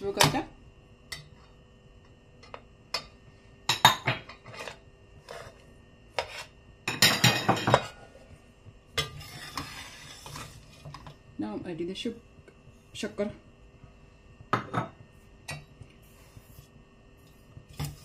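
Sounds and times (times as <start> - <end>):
metal spoon scraping a pot: 4.3 - 5.6, 6.2 - 6.6, 9.0 - 11.1.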